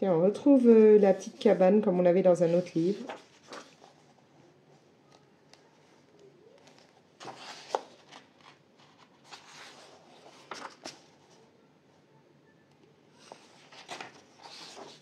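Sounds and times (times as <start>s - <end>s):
paper pages rustling: 2.4s - 11.4s, 13.2s - 15.0s.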